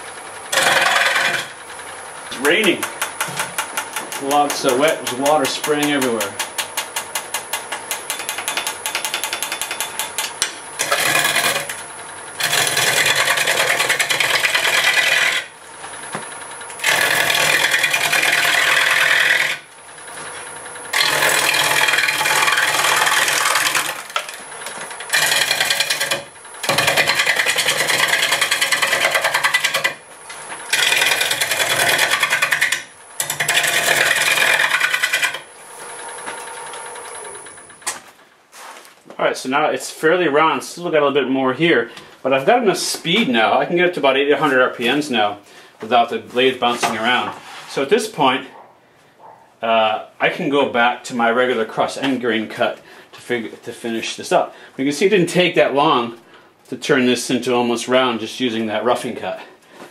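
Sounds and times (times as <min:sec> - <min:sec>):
gouge cutting wood on lathe: 0:00.5 - 0:01.6, 0:02.3 - 0:15.6, 0:16.7 - 0:37.6.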